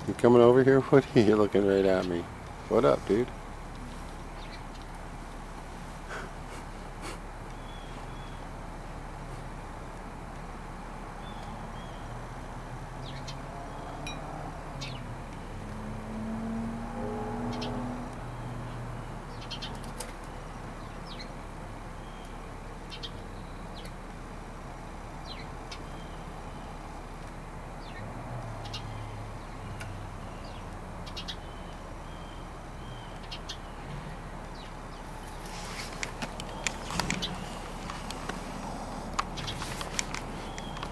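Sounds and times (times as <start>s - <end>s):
faint bird chirps: 7.5s - 8.5s, 17.4s - 24.0s, 27.8s - 35.5s
steady background hiss: 14.3s - 40.9s
clicking and rustling: 35.3s - 40.9s.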